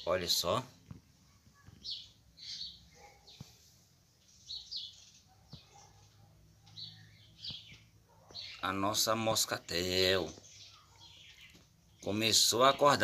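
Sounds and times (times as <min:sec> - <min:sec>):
faint high bird chirps: 0:01.2 - 0:13.0.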